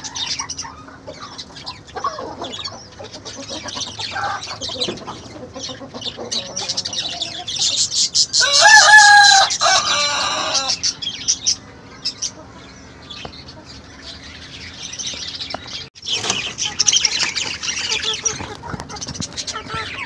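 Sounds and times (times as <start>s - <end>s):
rooster crowing: 8.3s - 10.9s.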